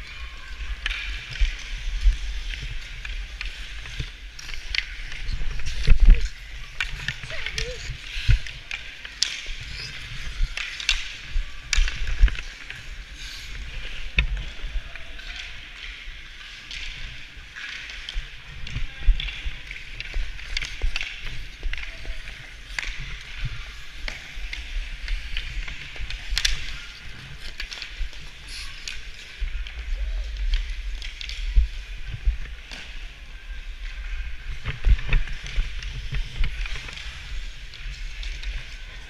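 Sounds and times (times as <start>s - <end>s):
skate blades scraping ice: 0.5s - 14.7s
sticks and puck clicking: 0.5s - 33.0s, 33.8s - 38.8s.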